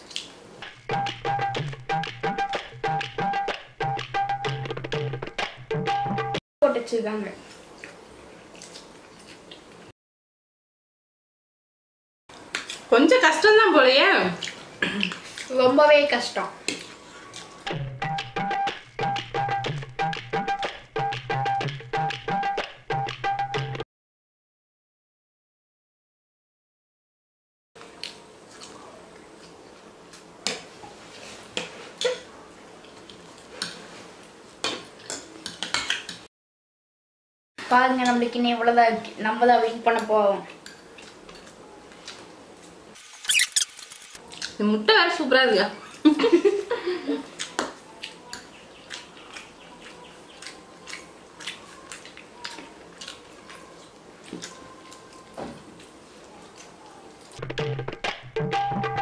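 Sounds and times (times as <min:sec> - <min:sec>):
mouths chewing: 0:14.2 - 0:15.6, 0:44.2 - 0:44.6, 0:47.2 - 0:57.4.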